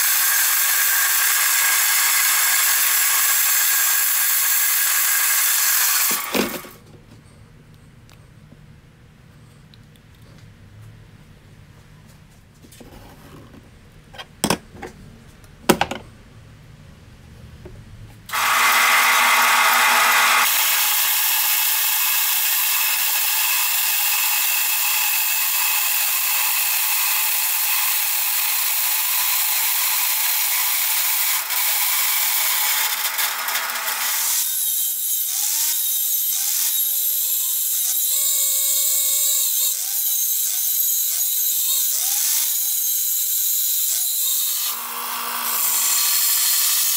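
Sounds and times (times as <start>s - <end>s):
angle grinder grinding steel: 0.0s - 6.8s, 18.3s - 23.4s, 29.3s - 46.9s
bandsaw cutting sheet steel: 0.0s - 6.8s, 18.3s - 46.9s.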